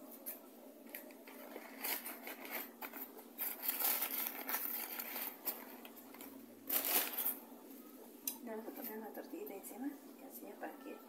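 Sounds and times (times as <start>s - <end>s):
bag rustling and crinkling: 1.2s - 7.4s.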